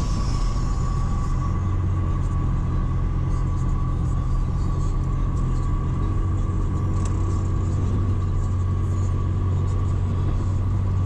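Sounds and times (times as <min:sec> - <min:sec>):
car road and engine rumble: 0:00.0 - 0:11.0
thin steady whine: 0:00.0 - 0:11.0.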